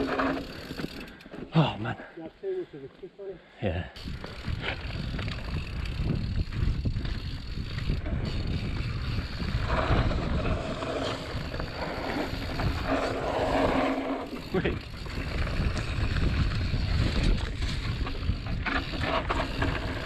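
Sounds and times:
bike tyres rumbling on dirt: 0.0 - 1.2, 4.0 - 20.0
bike rattling and knocking: 0.0 - 1.5, 4.0 - 20.0
wind buffeting microphone: 4.0 - 20.0.

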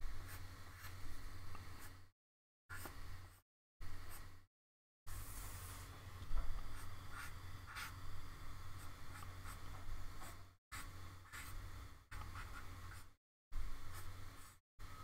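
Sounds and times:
steady low hum: 5.1 - 15.0
pencil sketching on paper: 6.6 - 8.0, 8.8 - 13.2, 13.8 - 14.6.

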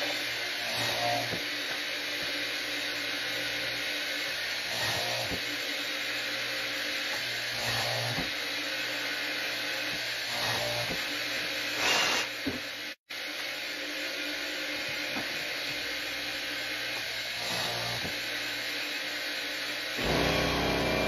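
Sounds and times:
line boring machine drilling: 0.0 - 1.4, 4.6 - 5.4, 7.5 - 8.2, 10.3 - 11.0, 17.3 - 18.2, 19.9 - 21.0.

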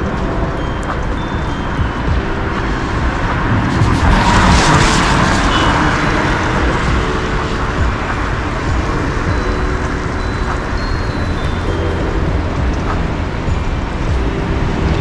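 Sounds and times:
steady traffic noise: 0.0 - 15.0
car passing close by: 2.6 - 9.3.

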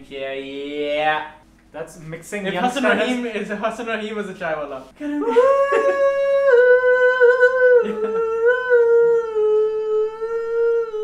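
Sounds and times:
man singing high notes: 5.1 - 11.0.

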